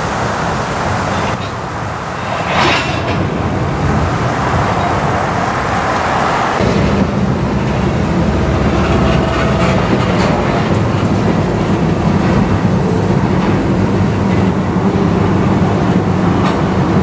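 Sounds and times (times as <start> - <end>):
freight wheels rumbling on rail: 0.0 - 17.0.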